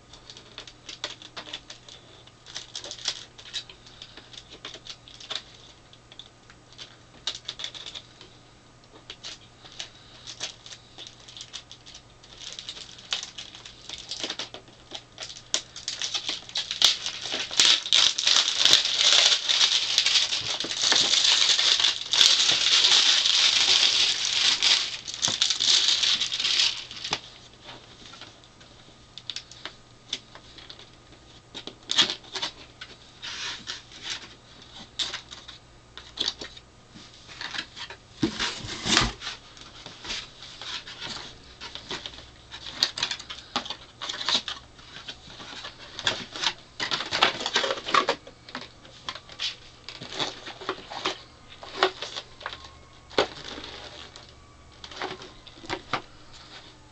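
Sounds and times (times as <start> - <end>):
packaging rustling: 0.1 - 8.3, 9.0 - 28.4, 29.2 - 56.9.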